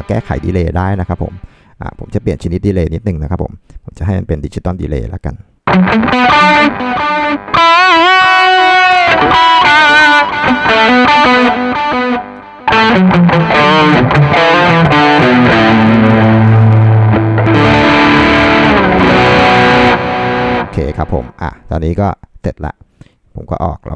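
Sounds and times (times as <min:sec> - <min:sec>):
electric guitar with delay: 0:05.7 - 0:21.4.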